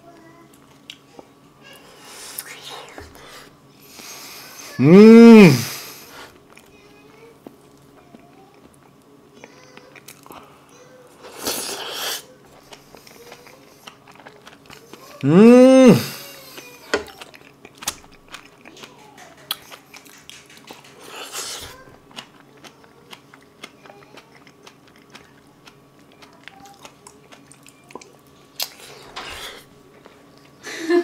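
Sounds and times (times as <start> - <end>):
person chewing with wet smacks: 0.6 - 1.3, 7.4 - 10.5, 11.3 - 15.3, 16.3 - 29.0
person exclaiming: 4.8 - 5.8, 15.2 - 16.3.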